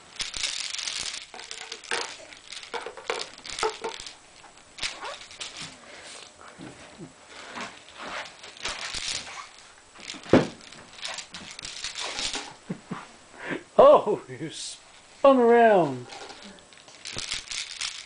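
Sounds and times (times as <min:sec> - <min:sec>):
plastic toy chain rattling: 0:00.1 - 0:06.3, 0:07.6 - 0:12.6, 0:15.9 - 0:18.0.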